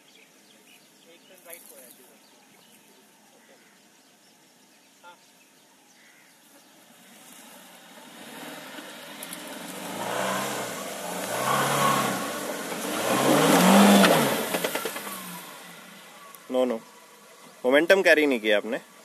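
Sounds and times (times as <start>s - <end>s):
car engine revving under load: 6.9s - 17.6s.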